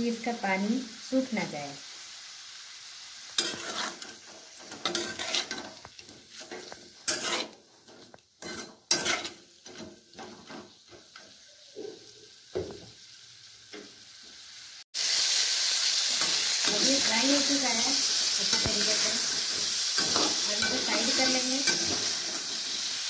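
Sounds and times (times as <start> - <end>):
chicken sizzling in oil: 0.0 - 23.0
spatula scraping and knocking pan: 3.4 - 12.8, 18.4 - 22.6.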